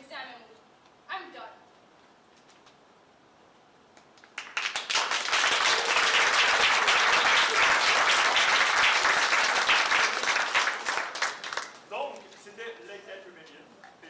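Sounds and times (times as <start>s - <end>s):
audience clapping: 4.0s - 12.3s.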